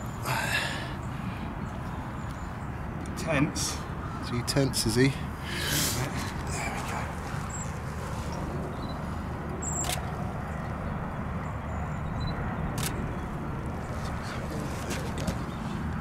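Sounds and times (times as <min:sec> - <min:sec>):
camera shutter clicks: 0:09.7 - 0:10.1, 0:12.8 - 0:13.0.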